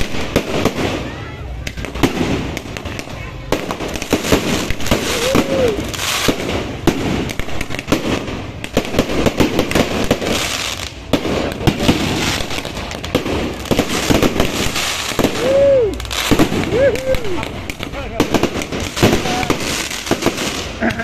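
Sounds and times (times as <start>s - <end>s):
fireworks crackling and banging: 0.0s - 21.0s.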